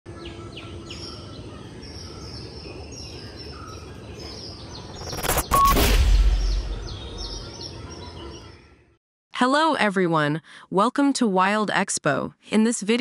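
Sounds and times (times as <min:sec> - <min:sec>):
birds chirping: 0:00.1 - 0:08.9
loud whoosh with deep boom: 0:05.0 - 0:07.6.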